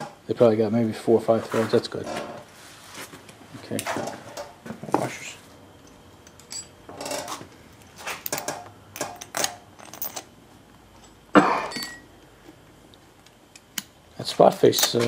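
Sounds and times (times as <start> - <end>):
metal bolts and washers clinking: 5.8 - 10.3, 14.6 - 15.0.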